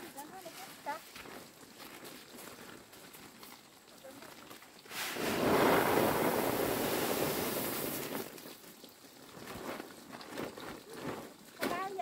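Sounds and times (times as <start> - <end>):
dried pieces rushing into sack: 4.9 - 8.3.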